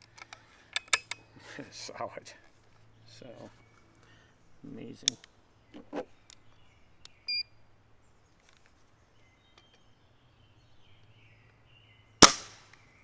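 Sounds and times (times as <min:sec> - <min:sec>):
faint birdsong: 0:00.0 - 0:13.0
air rifle shot: 0:12.2 - 0:12.7.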